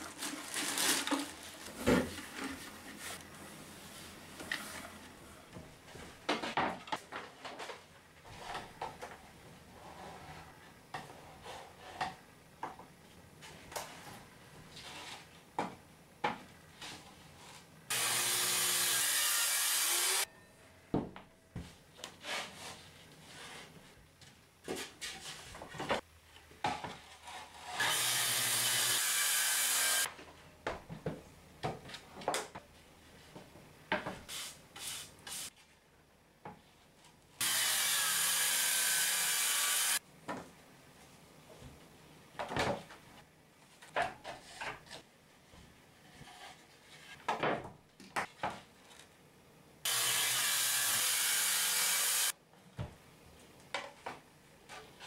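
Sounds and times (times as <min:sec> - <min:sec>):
circular saw cutting wood: 0:17.9 - 0:20.3, 0:27.8 - 0:30.1, 0:37.4 - 0:40.0, 0:49.9 - 0:52.3.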